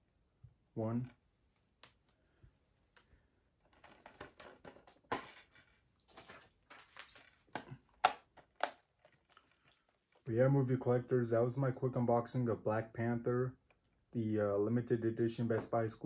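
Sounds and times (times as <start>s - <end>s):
packaging rustling: 3.7s - 10.0s.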